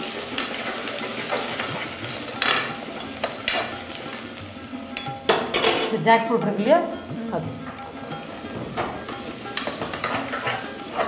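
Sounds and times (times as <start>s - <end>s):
food sizzling in oil: 0.0s - 11.0s
metal spatula scraping pot: 7.6s - 11.0s.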